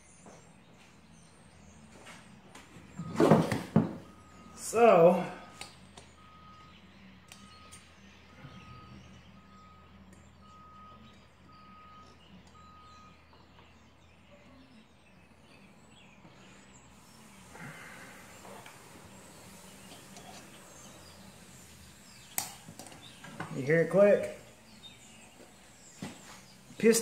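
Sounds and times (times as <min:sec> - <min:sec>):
distant reversing alarm beeping: 0:01.3 - 0:14.9, 0:15.6 - 0:22.2.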